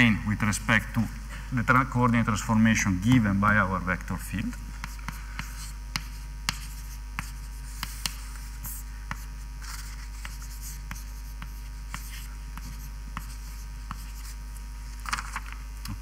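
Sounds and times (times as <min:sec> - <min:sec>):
low mains hum: 0:00.0 - 0:16.0
pen scratching handwriting: 0:04.7 - 0:14.4.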